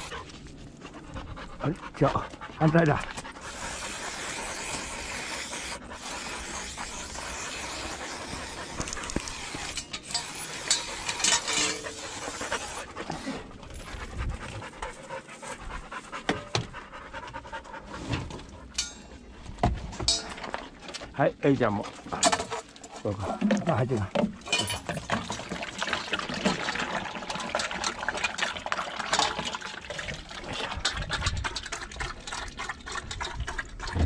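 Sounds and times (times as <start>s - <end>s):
dogs panting hard: 0.0s - 19.3s.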